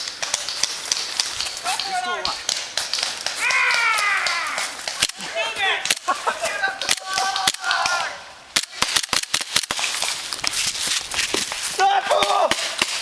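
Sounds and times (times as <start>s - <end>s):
people shouting: 1.6s - 2.4s, 3.3s - 8.4s, 11.8s - 12.8s
long falling yell: 3.4s - 4.8s.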